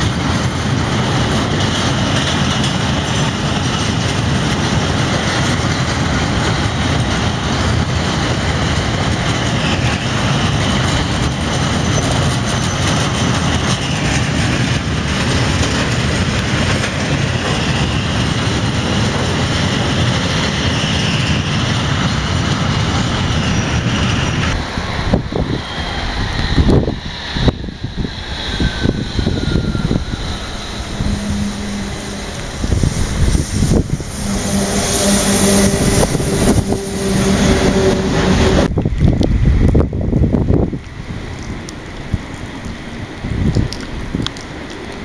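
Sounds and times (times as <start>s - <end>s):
freight train wagons rumbling: 0.0s - 45.0s
faint high wheel squeal: 11.6s - 14.4s, 28.0s - 38.7s.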